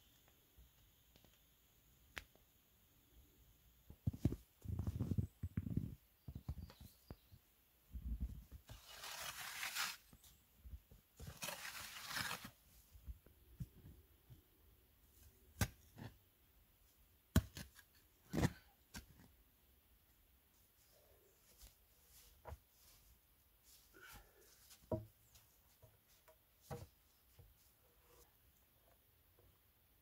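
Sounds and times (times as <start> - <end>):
leaves and soil scraping by hand: 8.6 - 10.4, 11.2 - 12.7.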